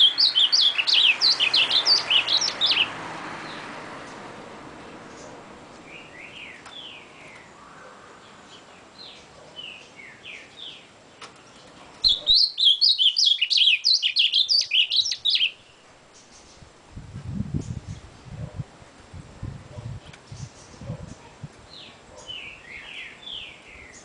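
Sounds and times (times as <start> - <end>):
bird rapid warbling song: 0.0 - 16.7, 17.3 - 18.6, 19.7 - 24.0
bird whistled notes: 12.1 - 15.6.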